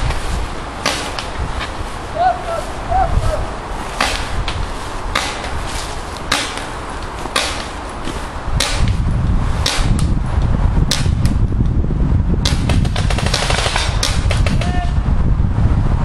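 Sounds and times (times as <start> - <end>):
paintball marker shots: 0.8 - 1.4, 4.0 - 5.6, 6.2 - 7.8, 8.6 - 9.0, 9.6 - 10.1, 10.9 - 11.3, 12.4 - 14.8
low rumble: 7.9 - 16.0.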